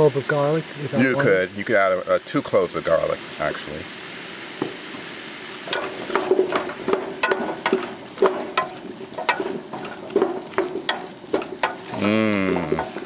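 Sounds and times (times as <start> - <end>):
wooden spoon scraping metal pot: 5.7 - 13.0.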